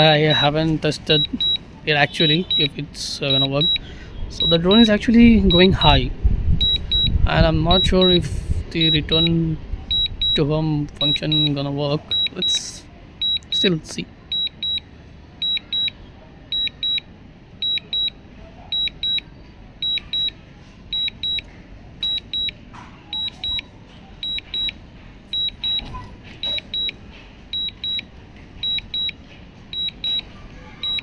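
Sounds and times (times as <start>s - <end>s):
remote controller double beep: 1.1s - 3.8s, 4.4s - 4.9s, 5.5s - 6.0s, 6.6s - 12.6s, 13.2s - 13.7s, 14.3s - 14.8s, 15.4s - 17.0s, 17.6s - 19.2s, 19.8s - 20.4s, 21.0s - 21.4s, 22.0s - 27.0s, 27.6s - 28.0s, 28.6s - 31.0s.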